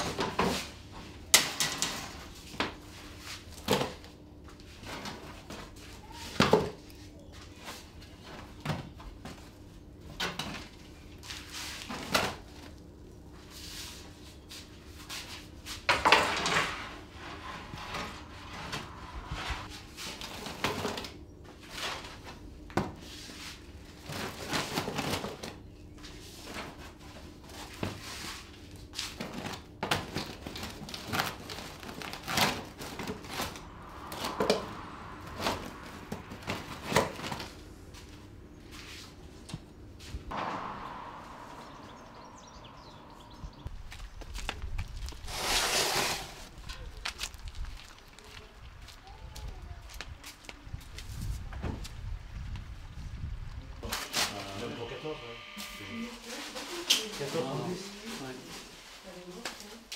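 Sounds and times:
faint hum: 30.8 - 44.8, 53.5 - 56.8.

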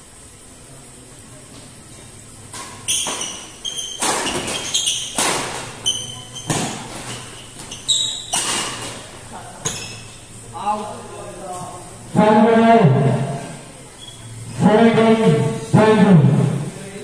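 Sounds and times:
shoe squeaks on court: 2.6 - 10.2, 14.0 - 14.4.

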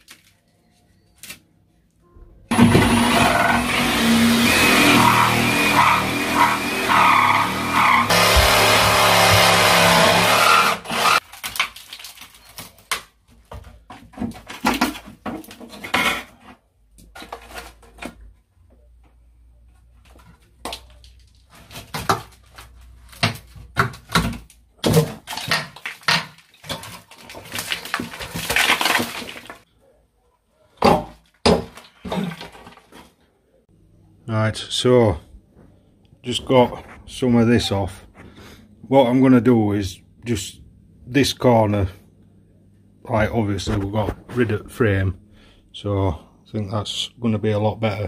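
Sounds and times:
wood cracking and breaking: 8.1 - 16.2, 20.6 - 29.7.

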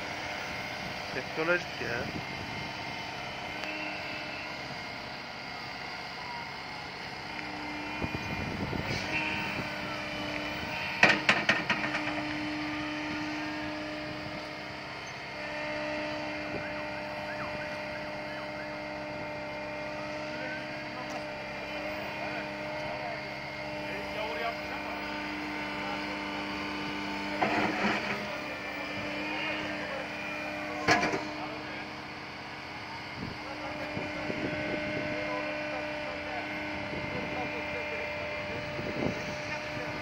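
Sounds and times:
excavator diesel engine running: 0.0 - 40.0
hydraulic hum: 0.0 - 40.0.

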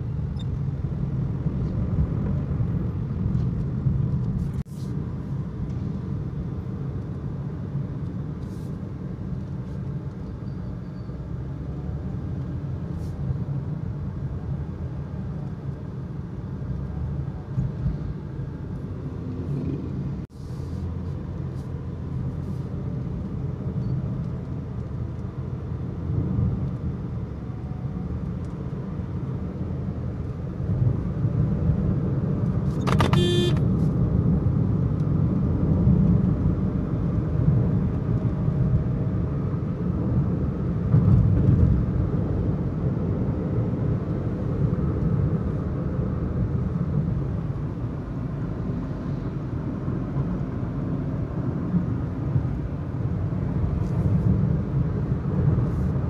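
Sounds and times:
car engine and road rumble: 0.0 - 56.0
brief pitched tone: 33.1 - 33.6.

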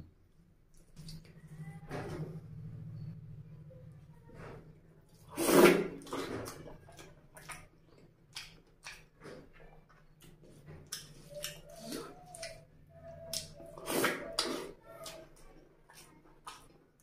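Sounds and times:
faint low hum: 0.0 - 17.0
person chewing with wet smacks: 0.6 - 1.5, 5.1 - 17.0.

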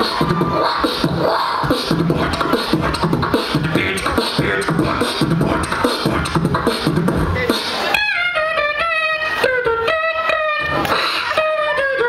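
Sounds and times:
beatboxing into a microphone: 0.0 - 12.0.

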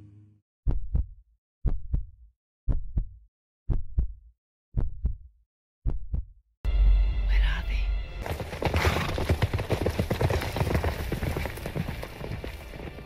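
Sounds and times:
heartbeat thumps: 0.7 - 6.4.

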